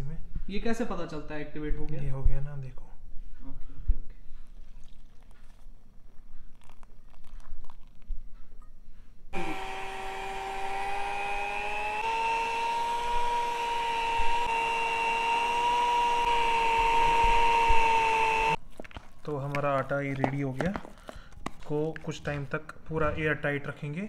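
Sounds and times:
small electric kitchen motor running: 9.4 - 18.6.

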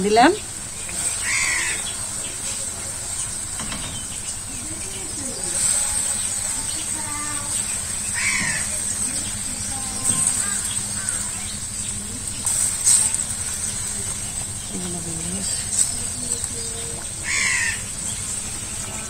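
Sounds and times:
steady high hiss: 0.0 - 19.0
crow cawing: 1.2 - 2.2, 7.1 - 11.6, 16.7 - 18.1.

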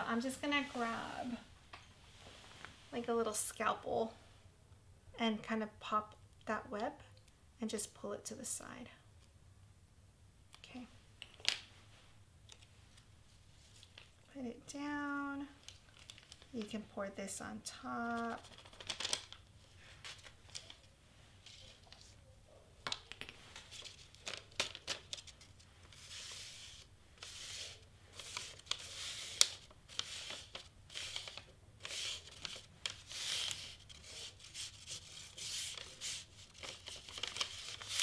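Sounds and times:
paper crinkling and rustling: 15.6 - 16.8, 18.0 - 22.2, 22.8 - 38.0.

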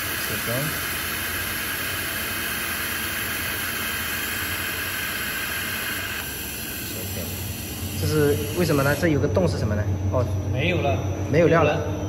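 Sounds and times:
welding torch hissing: 0.0 - 9.2
low machine hum: 0.0 - 12.0.

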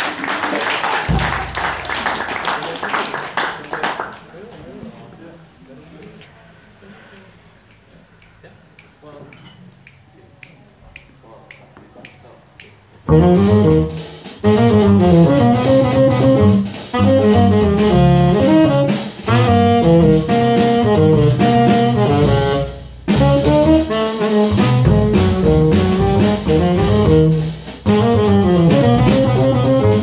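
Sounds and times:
drum kit: 0.7 - 3.6, 12.7 - 30.0
double bass: 1.1 - 2.4, 13.0 - 30.0
tenor saxophone: 13.1 - 30.0.

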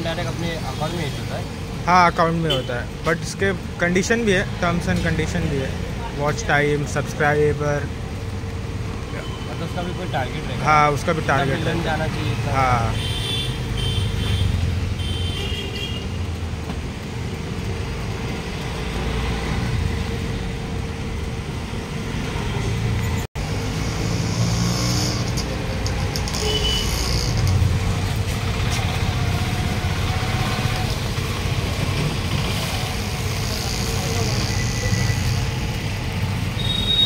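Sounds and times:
traffic rumble: 0.0 - 37.0.

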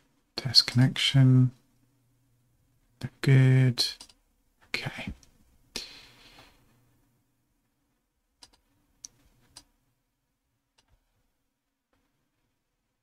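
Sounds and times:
computer mouse clicks: 4.0 - 4.2, 8.4 - 9.7, 10.8 - 11.1.

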